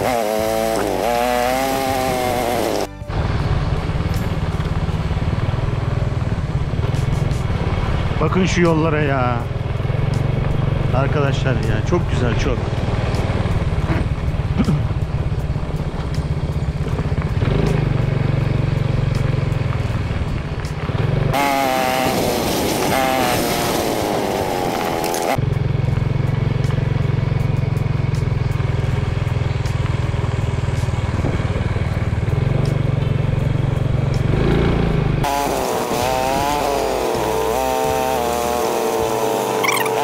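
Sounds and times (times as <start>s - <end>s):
motorcycle engine running: 0.0s - 40.0s
wavering pitched sound: 39.6s - 40.0s.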